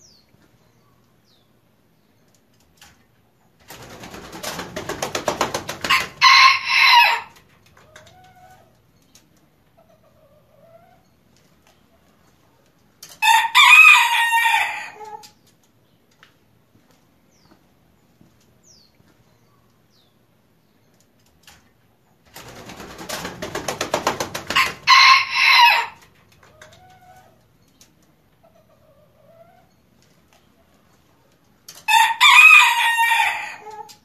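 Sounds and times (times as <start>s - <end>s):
wing flaps: 3.6s - 6.2s, 22.3s - 24.9s
rooster crowing: 5.9s - 7.4s, 13.2s - 15.2s, 24.6s - 26.0s, 31.9s - 33.8s.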